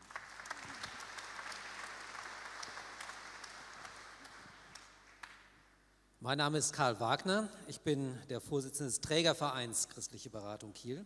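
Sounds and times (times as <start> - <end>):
congregation applauding: 0.0 - 5.5.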